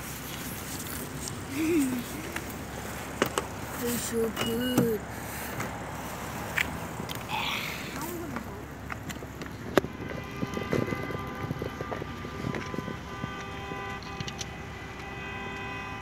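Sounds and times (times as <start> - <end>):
car door opening: 4.2 - 5.8.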